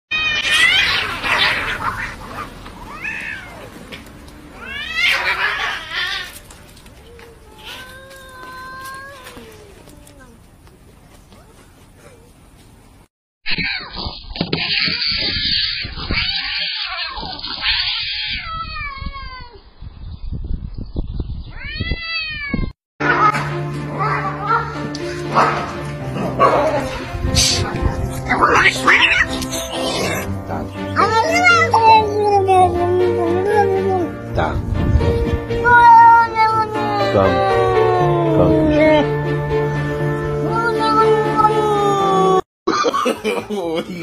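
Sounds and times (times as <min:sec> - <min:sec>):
cats yowling in a fight: 0:00.1 - 0:04.0, 0:04.6 - 0:10.4, 0:13.6 - 0:19.6, 0:28.4 - 0:29.3.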